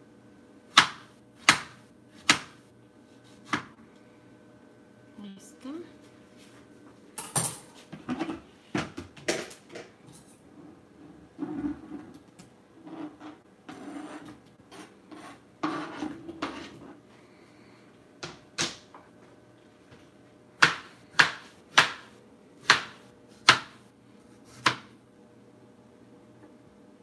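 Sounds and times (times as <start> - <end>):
knife scraping plastic cutting board: 12.9 - 16.9.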